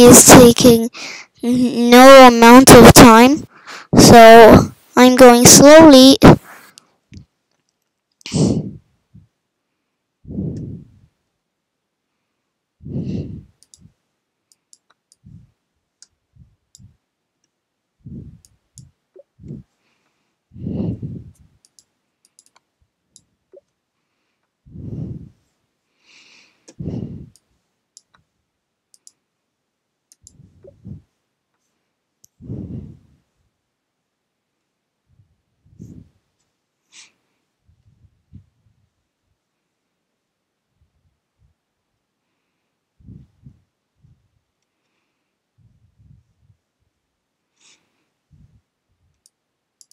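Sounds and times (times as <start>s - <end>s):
child breathing: 0.0s - 1.8s, 3.2s - 6.7s, 8.3s - 8.9s, 10.2s - 11.1s, 12.8s - 13.6s, 18.0s - 18.4s, 19.4s - 21.5s, 24.0s - 27.4s, 32.4s - 33.2s, 47.6s - 48.6s
computer mouse clicks: 13.6s - 13.9s, 14.5s - 15.2s, 21.6s - 23.8s, 28.9s - 29.2s, 30.1s - 30.4s, 49.2s - 49.9s.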